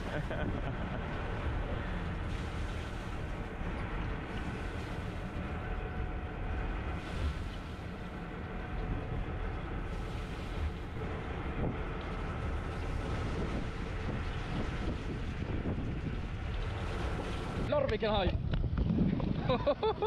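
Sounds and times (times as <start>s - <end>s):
boat engine rumbling: 0.0s - 20.0s
wind noise on microphone: 8.8s - 20.0s.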